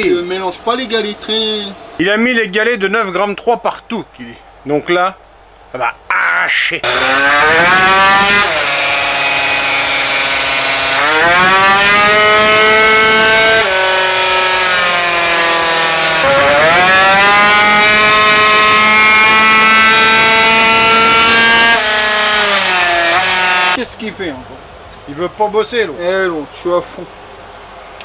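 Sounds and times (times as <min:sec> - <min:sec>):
scooter engine at full throttle: 0:06.8 - 0:23.8.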